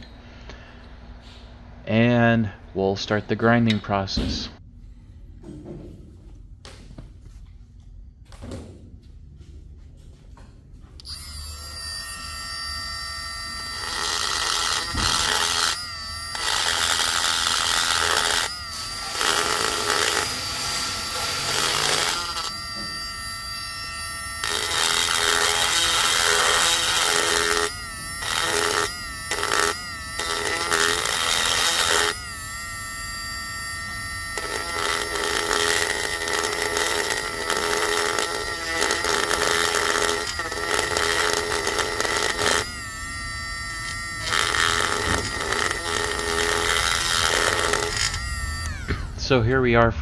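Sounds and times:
rotary tool grinding metal: 11.0s - 49.4s.

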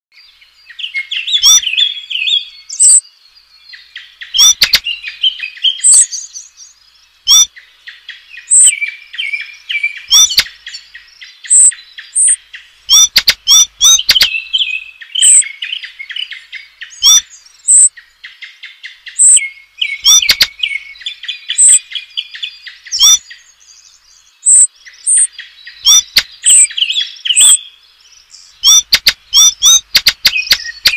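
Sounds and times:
songbird warbling: 0.6s - 30.9s
sharp high bird notes: 10.1s - 10.5s, 11.5s - 14.3s, 17.0s - 17.9s, 24.5s - 26.7s.

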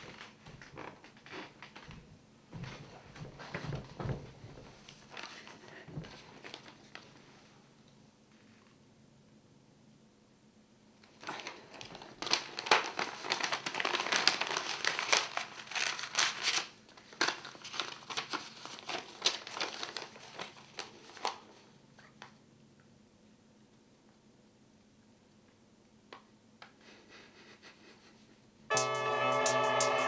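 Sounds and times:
paper rustling: 2.7s - 7.5s, 11.0s - 21.7s
envelope tearing: 11.1s - 21.5s.

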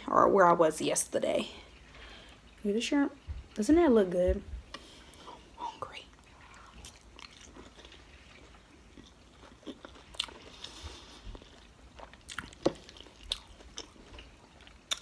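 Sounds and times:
chewing and crunching shrimp: 6.3s - 15.0s.

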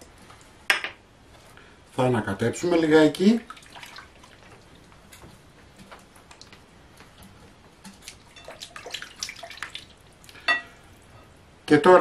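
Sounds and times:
water sloshing in a bowl: 3.2s - 4.9s, 7.2s - 10.5s.

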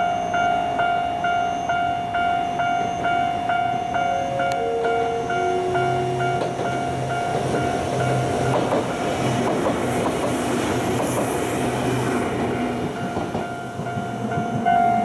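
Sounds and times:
pulsing electronic warning tone: 0.0s - 8.7s
train wheels clattering over rail joints: 6.3s - 14.8s.

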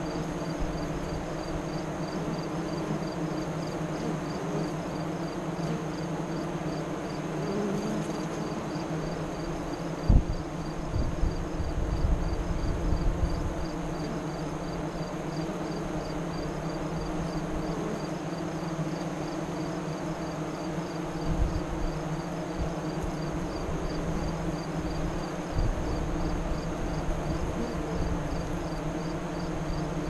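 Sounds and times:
bees buzzing: 0.0s - 30.0s
wind rumbling on microphone: 10.0s - 13.7s, 25.5s - 28.4s.

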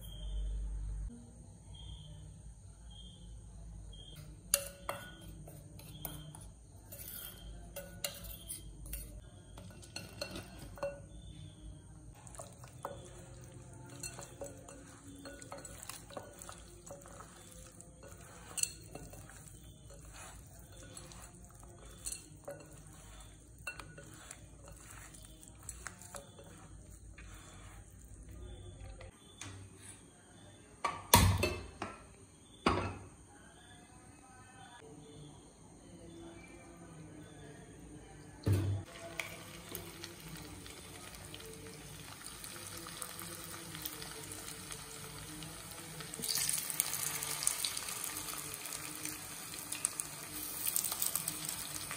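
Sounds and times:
clinks against glass bowl: 4.2s - 11.6s, 12.2s - 27.8s
hand mixing chicken: 12.1s - 29.0s.

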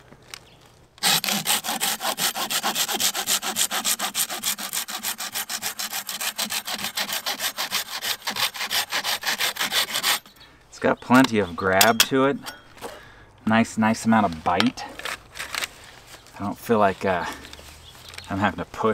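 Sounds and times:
pruning saw cutting dry branch: 1.0s - 10.3s.

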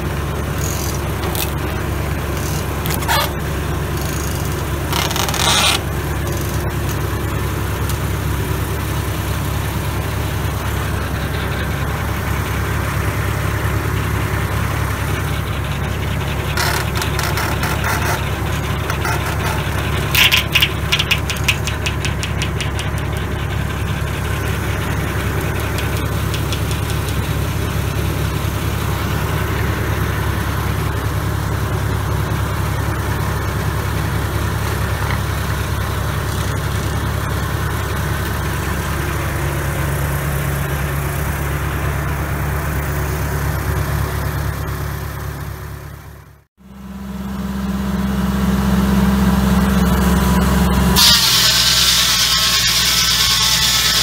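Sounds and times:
circular sawmill blade spinning: 0.0s - 54.0s
saw blade cutting wood hiss: 51.0s - 54.0s.

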